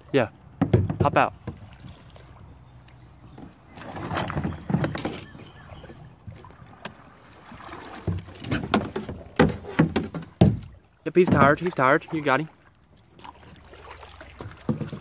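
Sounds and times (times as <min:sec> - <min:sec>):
water splashing: 0:00.0 - 0:15.0
knocks on plastic kayak: 0:00.6 - 0:01.6, 0:08.1 - 0:11.6, 0:14.5 - 0:15.0.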